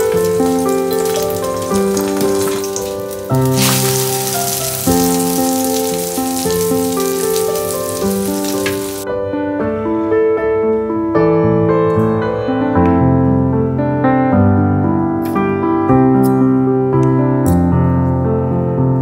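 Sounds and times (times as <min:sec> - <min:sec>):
omelette sizzling in skillet: 0:00.0 - 0:09.0
gentle piano music: 0:00.0 - 0:19.0.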